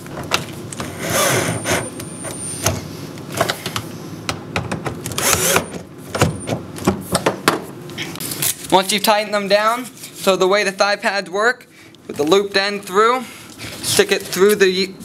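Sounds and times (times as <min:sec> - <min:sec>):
cordless drill running: 0:00.9 - 0:01.9, 0:05.2 - 0:05.7.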